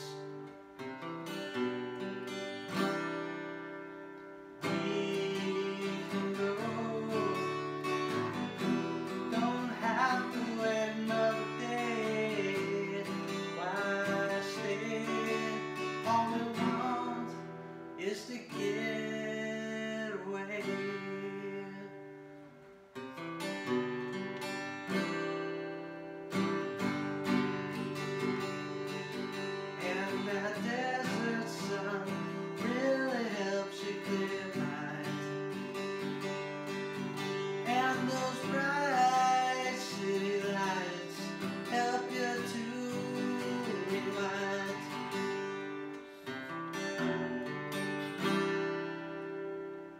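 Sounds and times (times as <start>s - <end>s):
man singing: 0.0s - 0.4s, 4.6s - 22.2s, 27.9s - 45.9s, 46.7s - 48.2s
acoustic guitar strumming: 0.0s - 49.9s.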